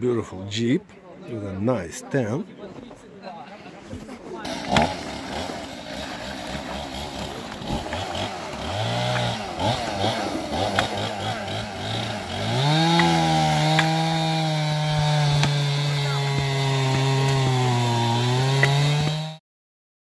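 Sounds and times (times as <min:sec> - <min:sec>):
chainsaw engine revving: 0:04.4 - 0:19.4.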